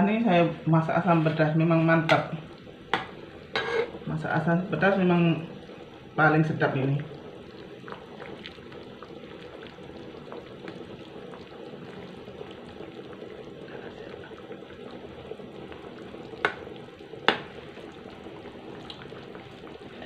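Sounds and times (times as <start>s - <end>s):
curry bubbling in a wok: 0.0s - 20.0s
ladle scraping a wok: 3.5s - 4.0s.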